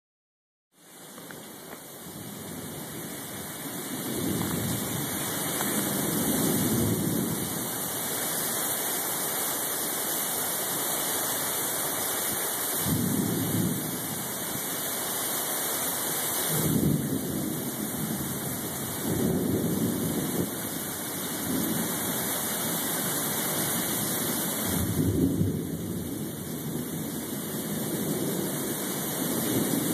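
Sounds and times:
heavy rain pouring: 0:00.8 - 0:29.9
low thunder rumbles: 0:02.1 - 0:08.2, 0:12.8 - 0:14.6, 0:16.5 - 0:22.8, 0:23.6 - 0:29.9.

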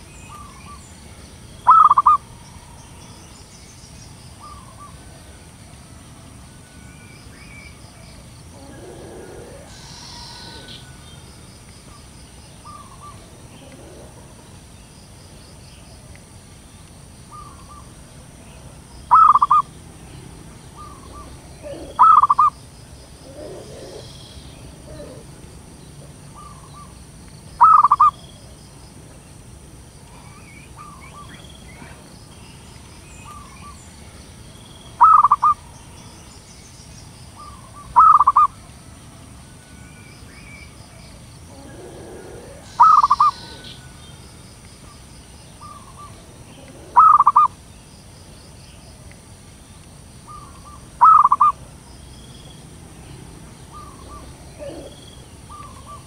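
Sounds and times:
dove cooing: 0:01.7 - 0:02.2, 0:08.5 - 0:11.0, 0:12.6 - 0:14.5, 0:19.1 - 0:19.7, 0:20.7 - 0:27.0, 0:27.6 - 0:28.2, 0:35.0 - 0:35.6, 0:37.4 - 0:38.6, 0:41.5 - 0:44.0, 0:45.6 - 0:47.6, 0:50.3 - 0:51.6, 0:53.7 - 0:56.0.

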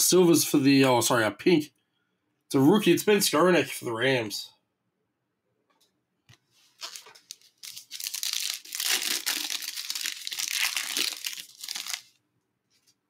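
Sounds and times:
foil wrapper crinkling and tearing: 0:06.7 - 0:12.2.

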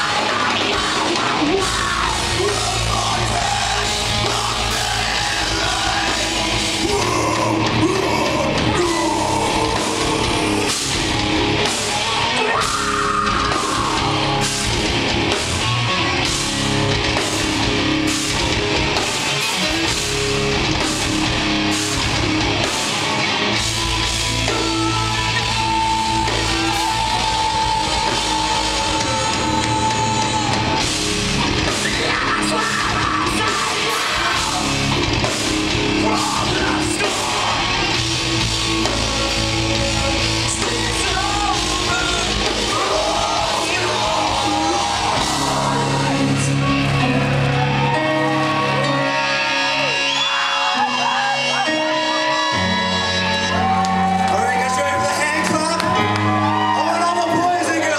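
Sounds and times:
live rock band playing: 0:00.0 - 0:57.9.

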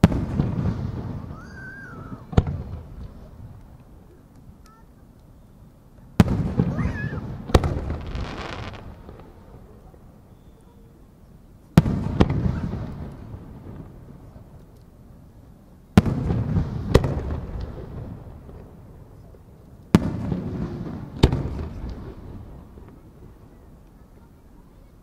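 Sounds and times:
firework bangs: 0:00.0 - 0:04.0, 0:06.2 - 0:10.0, 0:11.8 - 0:14.6, 0:15.9 - 0:23.8.

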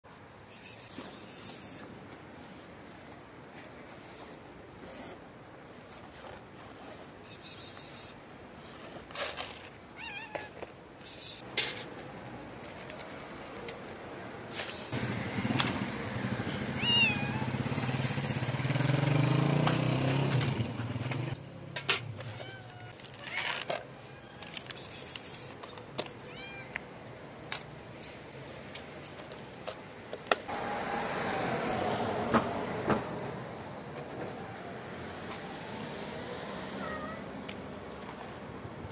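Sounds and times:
cats meowing: 0:10.0 - 0:10.6, 0:16.7 - 0:17.6, 0:22.3 - 0:24.8, 0:26.2 - 0:26.8, 0:36.7 - 0:37.3
passing car hum: 0:30.5 - 0:38.0.

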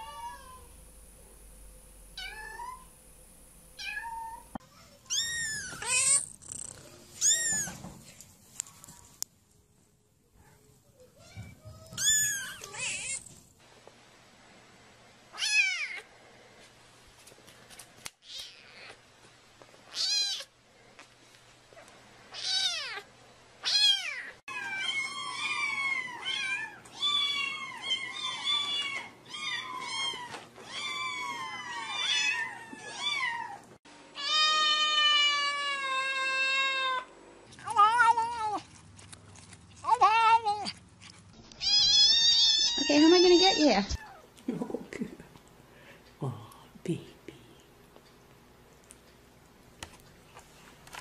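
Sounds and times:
kittens meowing: 0:03.8 - 0:07.8, 0:11.2 - 0:13.3, 0:41.6 - 0:44.3.

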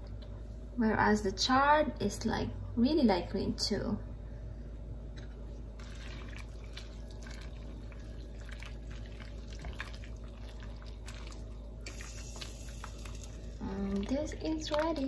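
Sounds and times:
steady low hum: 0:00.0 - 0:15.0
spatula stirring broth: 0:05.8 - 0:15.0.

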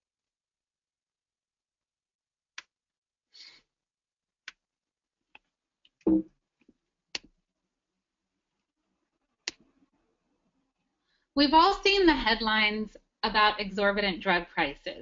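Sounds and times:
low thump: 0:06.1 - 0:06.3.

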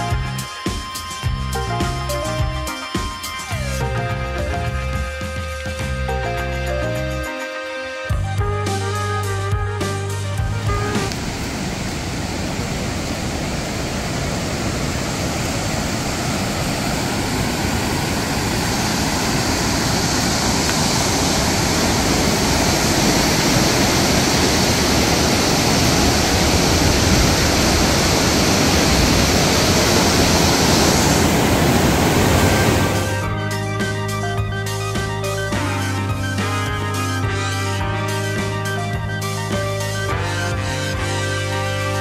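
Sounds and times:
river rushing over rocks: 0:11.1 - 0:33.3.

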